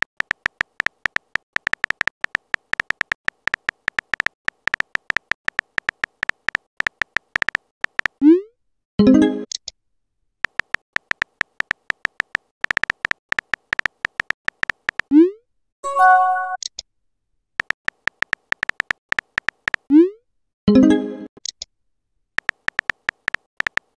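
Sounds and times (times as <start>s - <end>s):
synthetic key-tap clicks: 0.0s - 8.2s, 10.4s - 15.1s, 17.6s - 19.9s, 22.4s - 23.9s
brief chime: 15.8s - 16.6s.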